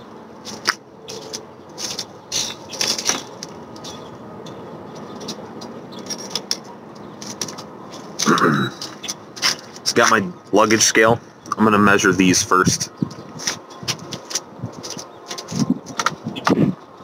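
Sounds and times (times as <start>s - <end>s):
clicks knocks and rustles: 0.4s - 4.1s, 4.9s - 9.9s, 13.1s - 16.6s.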